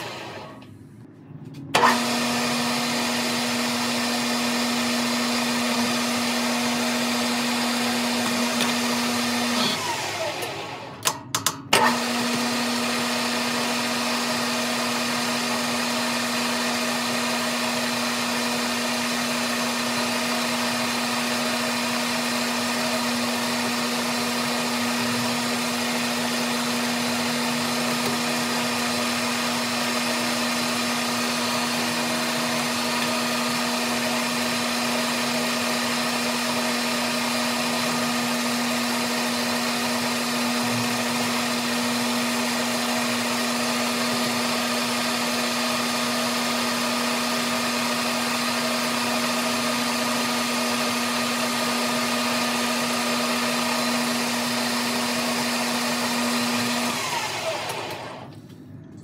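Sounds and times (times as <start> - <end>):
metal lathe running: 19.9 - 58.3.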